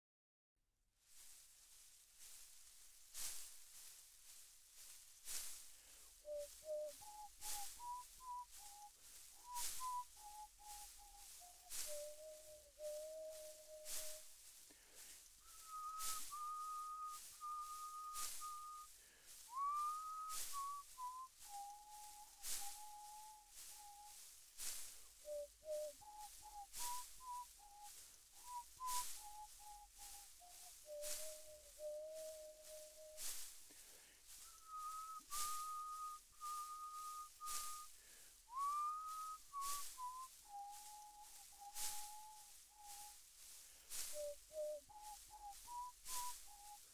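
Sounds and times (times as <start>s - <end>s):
short hiss: 1.0s - 46.9s
person whistling a slow melody: 4.8s - 43.3s, 43.9s - 46.9s
breathy hisses: 14.5s - 15.4s, 33.2s - 34.4s.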